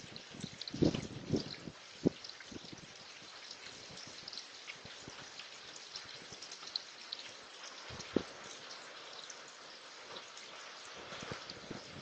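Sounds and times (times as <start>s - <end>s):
rain falling steadily: 0.0s - 12.0s
raindrop taps: 4.0s - 9.4s, 10.1s - 12.0s.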